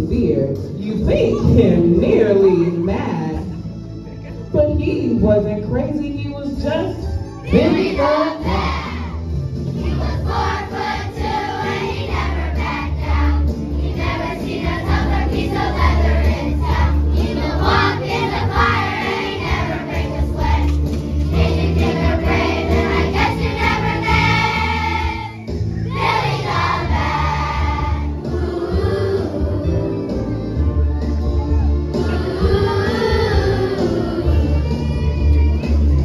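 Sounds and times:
children's choir singing: 7.5s - 31.2s, 31.8s - 36.0s.

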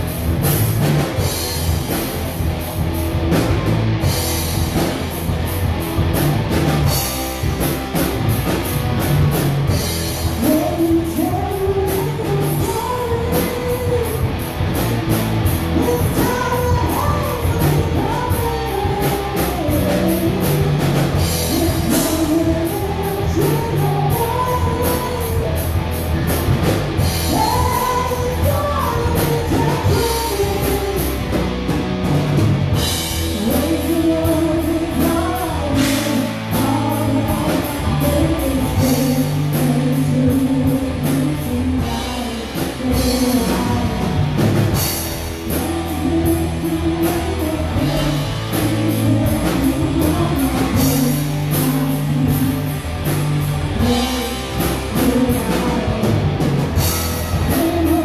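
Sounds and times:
drum kit with cymbals: 0.0s - 58.0s
electric guitars: 0.0s - 58.0s
woman singing: 10.0s - 14.5s, 15.7s - 25.8s, 27.0s - 31.5s, 33.3s - 56.3s, 57.2s - 58.0s.

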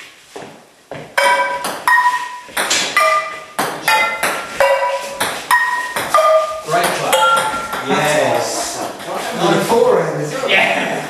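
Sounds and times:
frying pans clanging on ball: 1.1s - 8.0s.

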